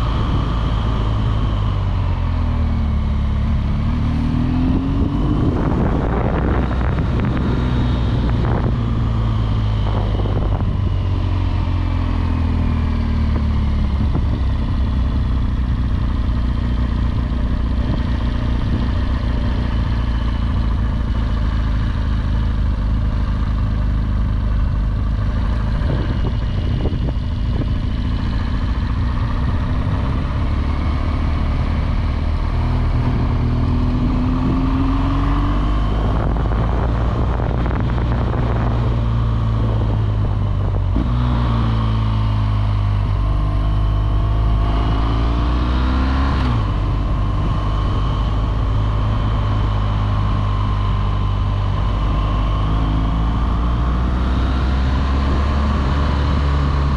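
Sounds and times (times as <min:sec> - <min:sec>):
motorcycle engine accelerating: 0:00.0 - 0:56.9
wind rush: 0:03.9 - 0:12.6, 0:25.2 - 0:30.6, 0:32.7 - 0:56.9.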